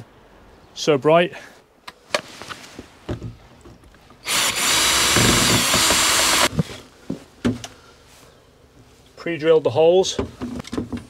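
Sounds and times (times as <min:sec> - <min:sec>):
cordless drill driving screw: 0:04.2 - 0:06.5.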